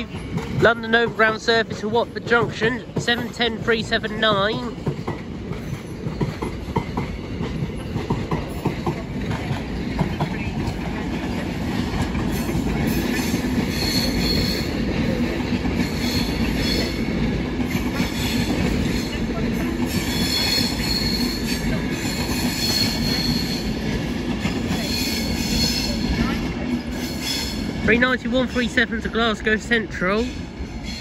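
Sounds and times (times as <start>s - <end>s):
rumble of wheels on rail: 0.0s - 31.0s
train wheels squealing: 12.3s - 17.1s, 17.7s - 27.7s, 30.2s - 31.0s.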